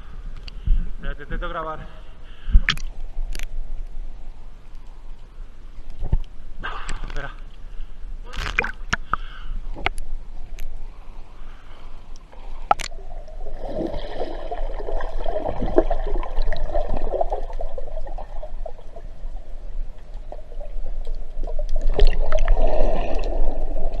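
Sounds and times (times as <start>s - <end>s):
underwater water rushing and gurgling: 12.4s - 24.0s.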